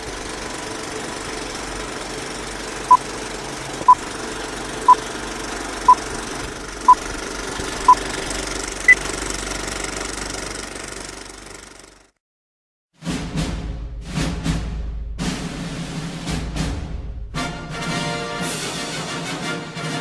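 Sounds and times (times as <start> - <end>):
film projector clatter: 0.0 - 12.1.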